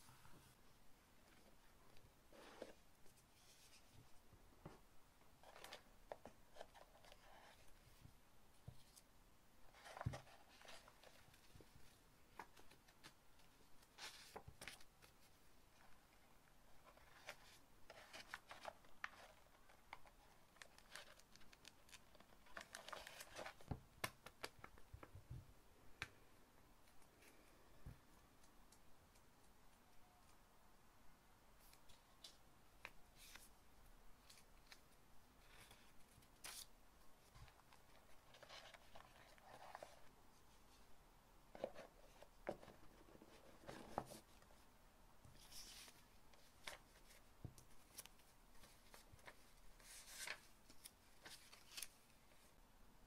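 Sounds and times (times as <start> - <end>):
paper rustling and crinkling: 16.8 - 24.6, 45.4 - 52.5.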